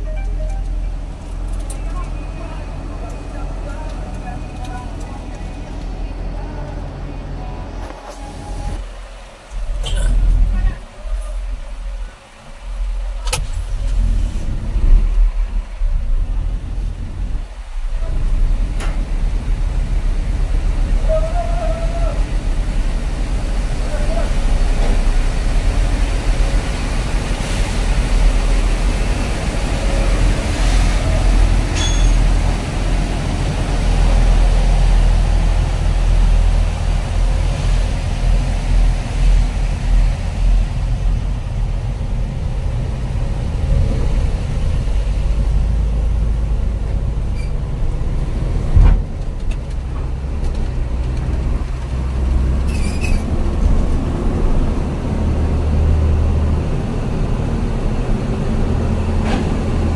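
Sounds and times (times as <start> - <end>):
diesel engine rumble from cab: 0.0 - 59.9.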